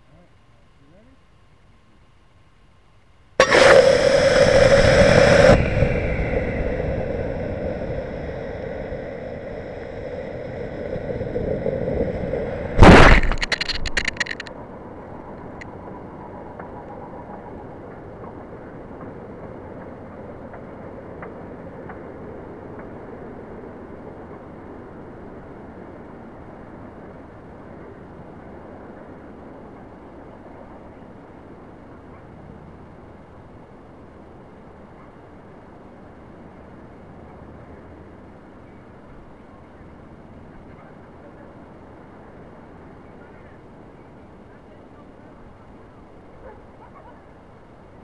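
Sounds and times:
ejection charge bang: 0:03.4 - 0:14.5
rocket motor rushing: 0:03.4 - 0:14.5
wind noise: 0:03.4 - 0:27.3
camera rattling in tube: 0:12.8 - 0:14.5.

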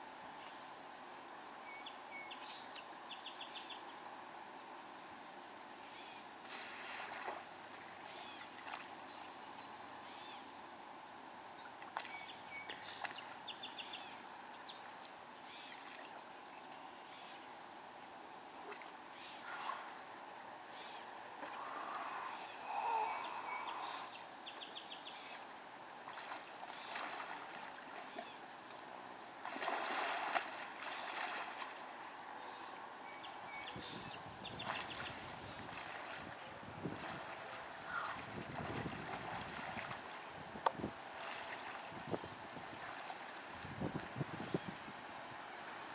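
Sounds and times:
steady background hiss: 0:00.0 - 0:45.9
water sloshing and splashing: 0:06.4 - 0:09.0, 0:26.0 - 0:32.0, 0:34.6 - 0:44.1.

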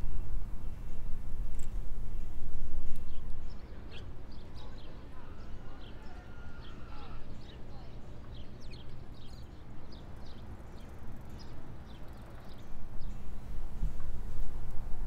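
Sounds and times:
small birds chirping: 0:03.0 - 0:13.3.

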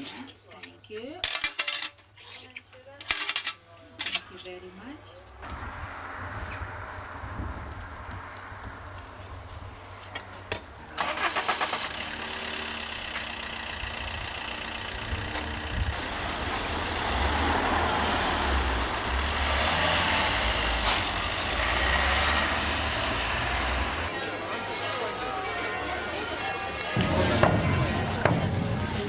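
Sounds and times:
engine starting and running: 0:11.0 - 0:24.1.

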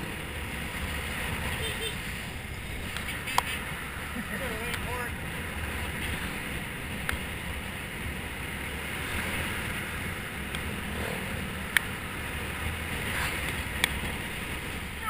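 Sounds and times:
sharp clicks: 0:02.9 - 0:03.6.

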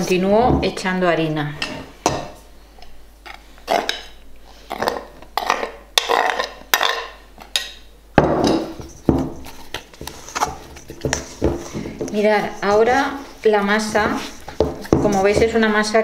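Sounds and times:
scraper knocking against steel bowl: 0:08.2 - 0:16.0.

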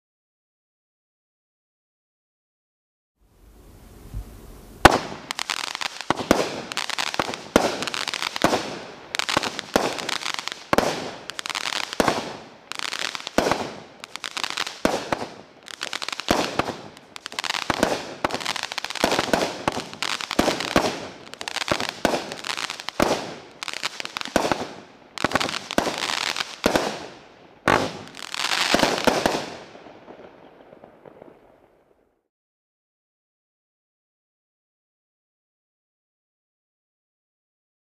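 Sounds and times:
firework crackling bursts: 0:04.0 - 0:31.6
firework bang: 0:04.8 - 0:11.3.

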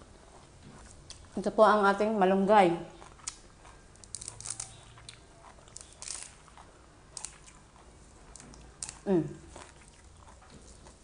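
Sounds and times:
fresh leaves crackling and rustling: 0:04.0 - 0:07.6.

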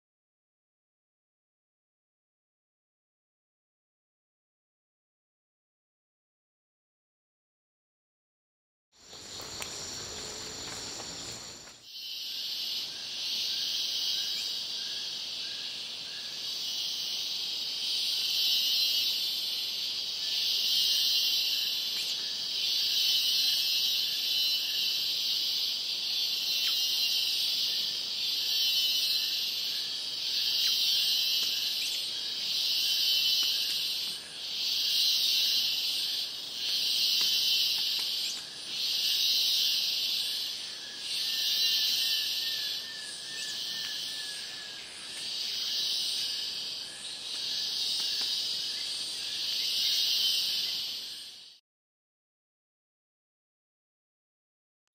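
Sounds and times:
insect chorus buzzing: 0:09.0 - 0:51.6.

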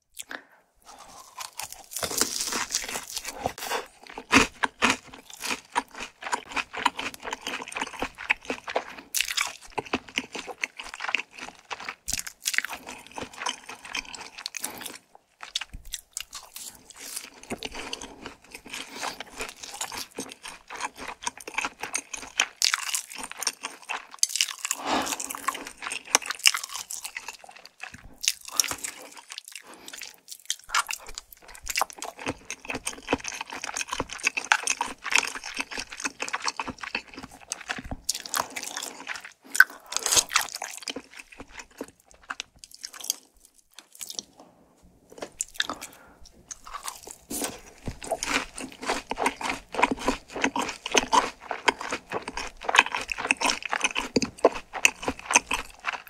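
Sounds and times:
person chewing and crunching food: 0:00.0 - 0:56.0.

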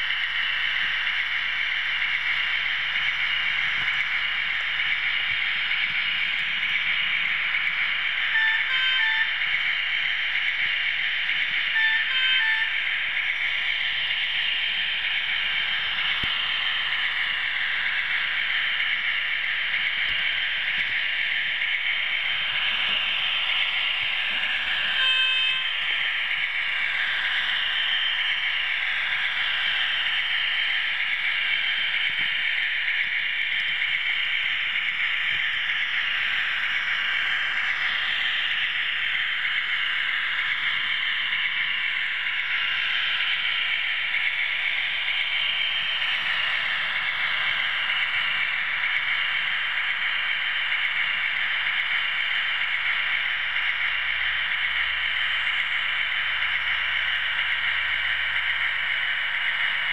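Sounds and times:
model train whirring: 0:00.0 - 0:59.9
short pitched beep: 0:25.0 - 0:25.6.

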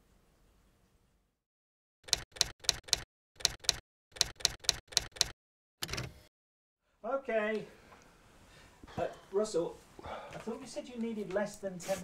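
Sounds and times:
sharp mechanical clicks: 0:02.0 - 0:06.1.

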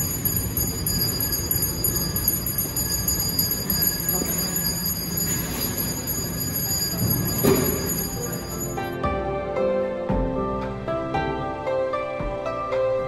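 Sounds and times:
background music: 0:08.3 - 0:13.0.

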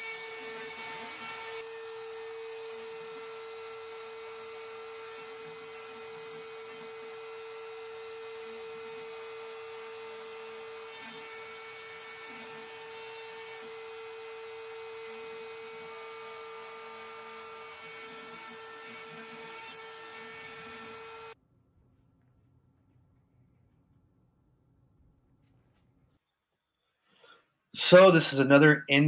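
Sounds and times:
router spindle whining: 0:00.0 - 0:21.4.

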